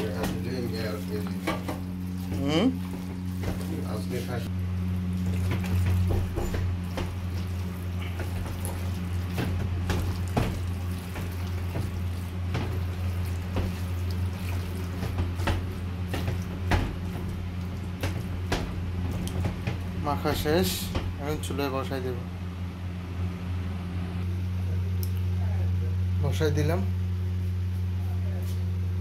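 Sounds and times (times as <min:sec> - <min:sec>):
hand kneading wet meat: 0:00.0 - 0:21.5
steady low hum: 0:00.0 - 0:29.0.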